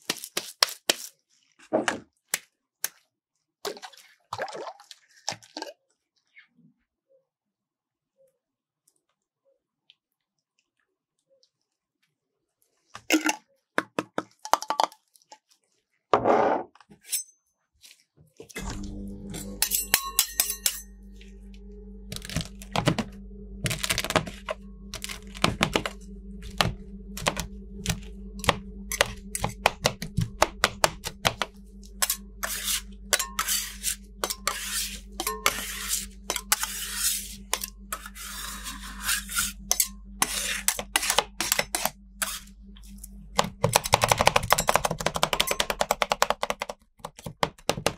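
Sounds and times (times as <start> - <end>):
refrigeration unit humming: 18.6 - 45.2
metal spatulas chopping on plate: 19.4 - 20.8, 23.6 - 42.4, 43.4 - 47.9.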